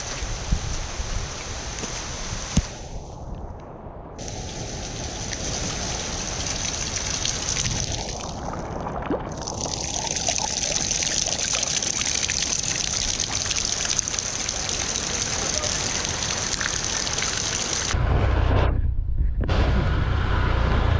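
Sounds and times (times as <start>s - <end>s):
rain splashing into water: 0.0s - 2.8s, 4.2s - 18.0s.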